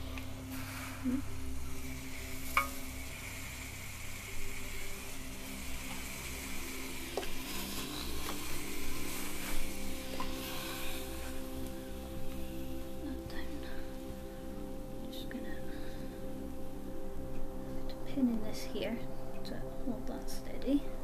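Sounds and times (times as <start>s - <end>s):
clothes iron hissing steam: 0.0s - 14.5s.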